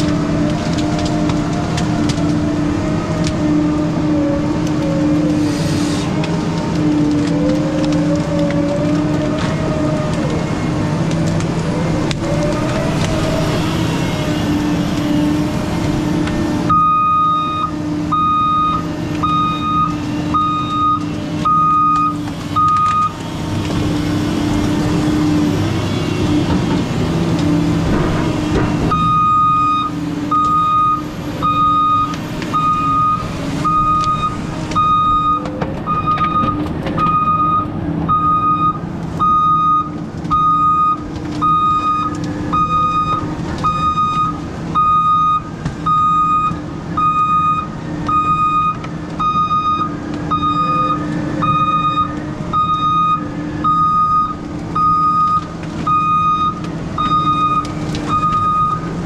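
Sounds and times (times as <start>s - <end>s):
diesel engine running: 0.0s - 59.0s
backup alarm beeping: 16.7s - 23.2s, 28.9s - 58.9s.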